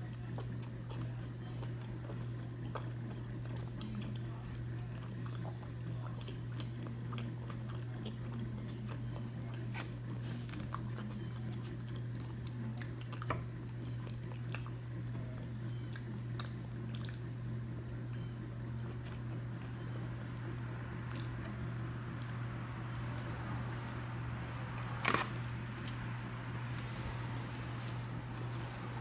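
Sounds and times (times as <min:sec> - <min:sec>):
eating clicks and smacks: 0:00.0 - 0:17.4
person chewing: 0:00.0 - 0:29.0
steady low hum: 0:00.0 - 0:29.0.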